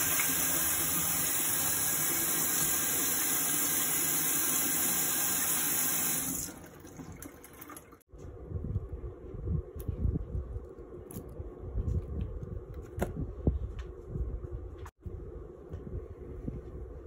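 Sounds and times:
faucet water splashing into sink: 0.0 - 8.0.

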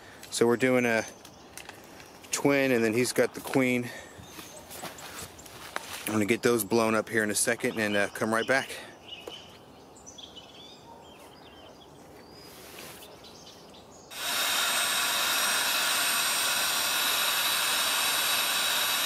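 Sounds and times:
electric air pump whirring: 14.1 - 19.0.

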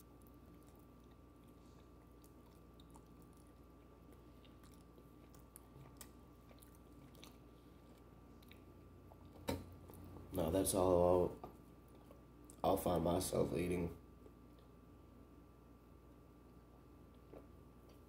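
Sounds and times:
faint chewing: 0.0 - 10.3, 11.4 - 12.6, 17.0 - 18.0.

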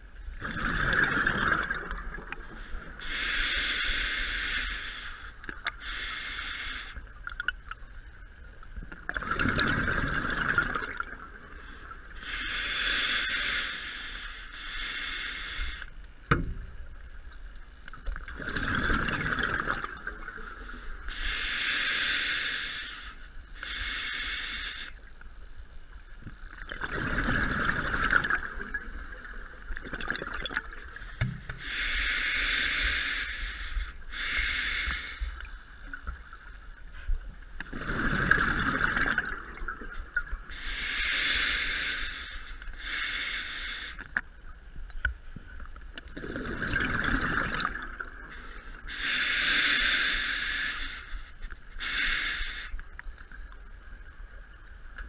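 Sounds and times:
gurgling exhaled bubbles: 0.4 - 3.0, 9.0 - 11.5, 18.2 - 20.7, 26.6 - 31.0, 37.7 - 40.5, 46.0 - 48.3
regulator hissing inhalations: 2.6 - 7.1, 11.7 - 16.0, 20.7 - 25.2, 31.0 - 35.6, 40.5 - 44.1, 48.3 - 53.4.

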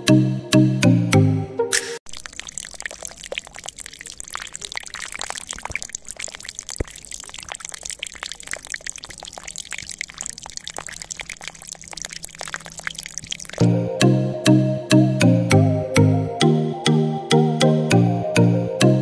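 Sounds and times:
water trickling into plastic tray: 2.1 - 13.7.

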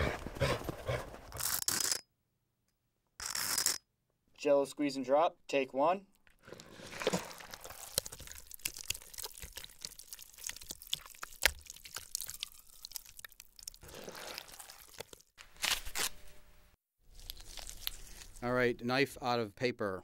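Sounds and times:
gelatin squelching and crackling: 6.2 - 16.1, 17.0 - 18.5.

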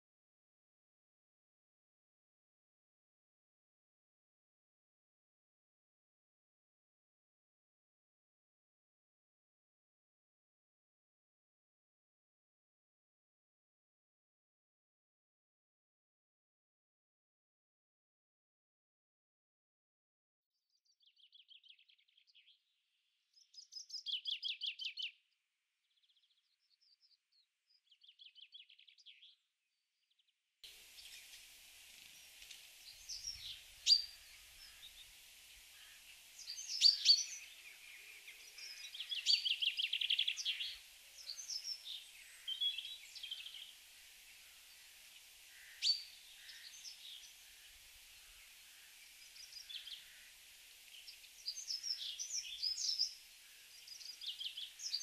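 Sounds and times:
songbirds chirping and trilling: 20.7 - 55.0
steady hiss: 30.6 - 55.0.

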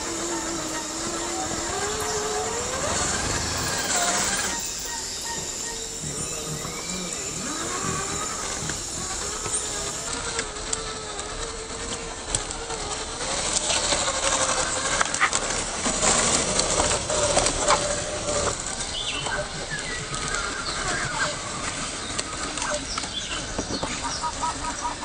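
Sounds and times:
birds chirping: 0.0 - 10.5, 16.1 - 25.0
electric motor whine: 0.0 - 25.0
tyres crackling over dry leaves: 0.0 - 25.0.

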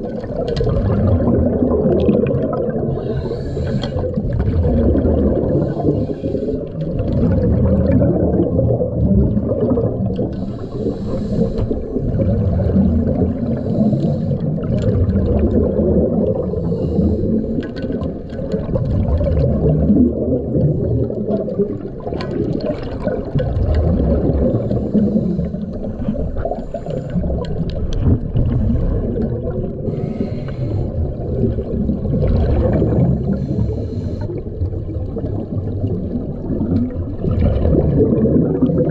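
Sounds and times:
underwater bubbling and churning: 0.0 - 38.9.

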